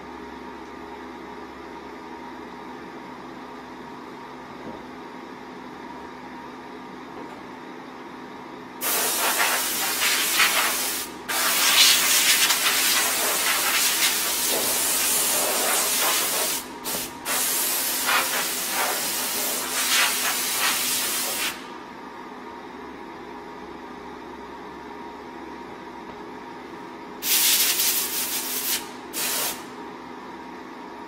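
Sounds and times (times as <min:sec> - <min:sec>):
compressed-air blow gun hissing: 0:08.8 - 0:14.6.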